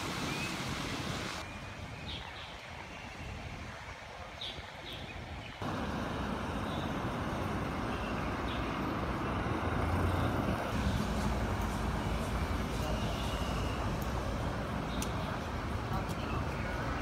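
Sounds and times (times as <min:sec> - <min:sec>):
cars driving past: 0:05.6 - 0:14.8.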